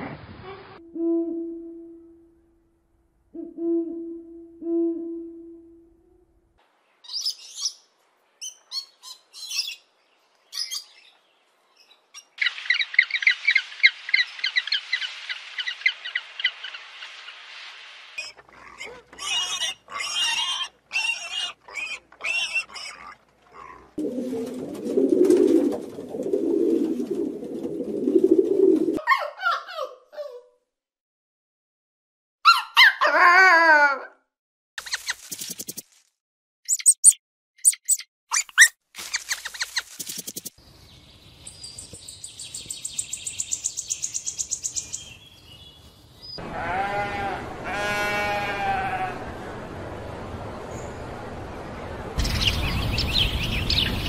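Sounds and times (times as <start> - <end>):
high bird chattering: 36.7 - 40.6
high bird chirps: 36.7 - 46.4.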